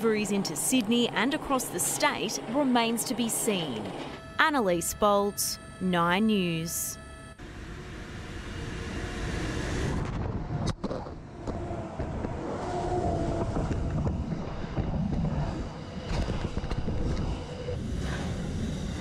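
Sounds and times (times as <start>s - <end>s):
faint steady whine: 0.0s - 10.4s.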